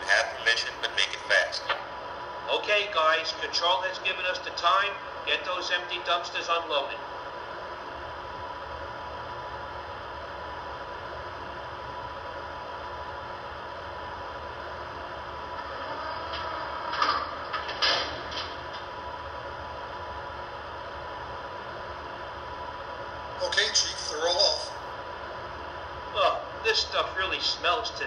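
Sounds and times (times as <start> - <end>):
creaks and metal clanks: 15.6 - 18.9.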